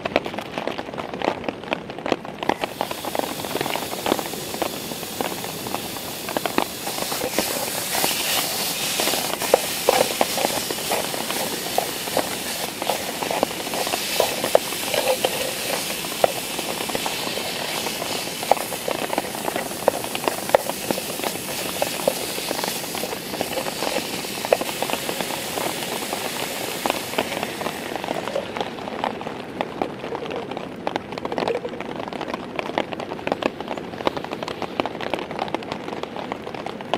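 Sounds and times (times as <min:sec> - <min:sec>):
rain pattering on a tarp: 0:00.0 - 0:36.9
chili sizzling and bubbling: 0:02.4 - 0:30.4.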